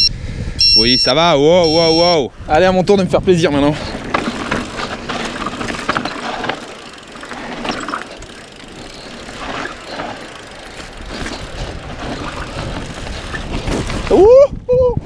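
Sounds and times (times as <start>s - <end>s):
bike tyres rolling over dirt: 2.4s - 15.0s
bike chain and frame clattering: 3.4s - 14.3s.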